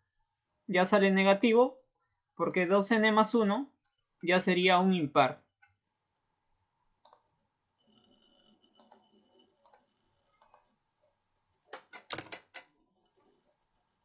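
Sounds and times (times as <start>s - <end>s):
computer keys clicking: 7.0s - 7.3s, 8.7s - 10.7s, 11.7s - 12.7s.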